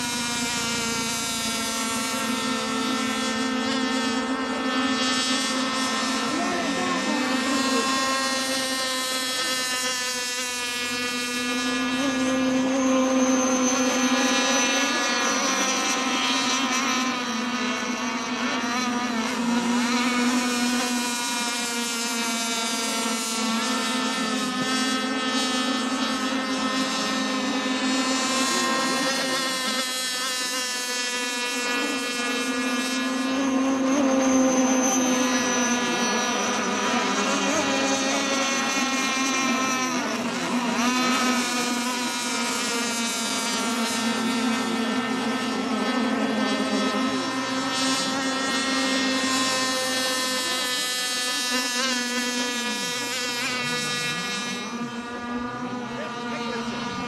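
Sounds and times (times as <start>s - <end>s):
racing boat engines buzzing: 0.0s - 57.0s.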